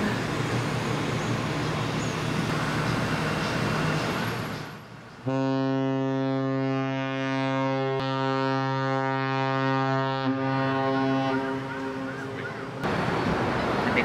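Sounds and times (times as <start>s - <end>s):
outdoor noise: 0.0s - 14.0s
ship's horn blast: 5.2s - 12.2s.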